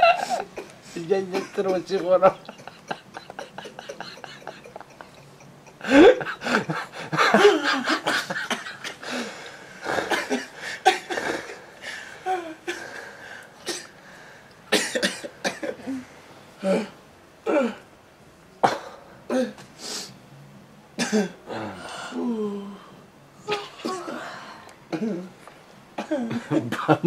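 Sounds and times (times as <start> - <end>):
people laughing wheezily: 0.0 - 11.6.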